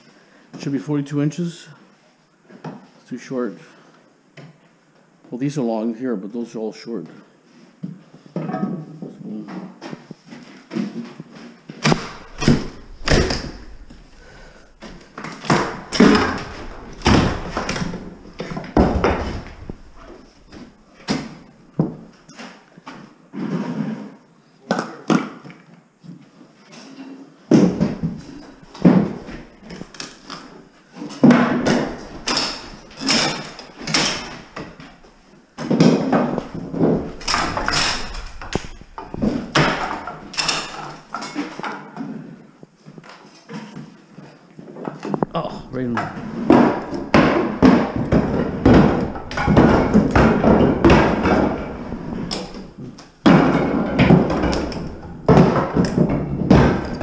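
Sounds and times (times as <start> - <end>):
wood knocking and cracking: 11.8 - 22.0, 27.5 - 30.6, 31.2 - 41.8, 45.1 - 57.0.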